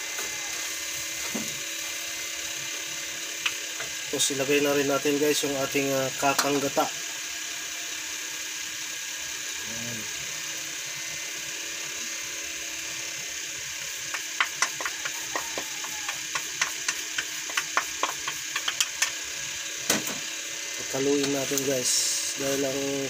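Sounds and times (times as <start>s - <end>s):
wooden spatula tapping a pan: 14.1s - 19.1s
steady hiss: 20.8s - 23.0s.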